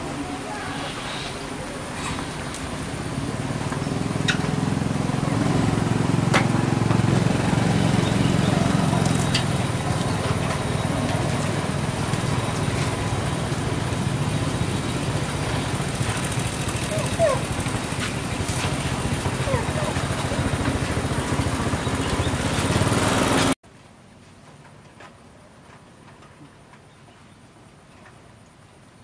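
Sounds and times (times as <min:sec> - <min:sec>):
small engine running: 0:01.9 - 0:23.6.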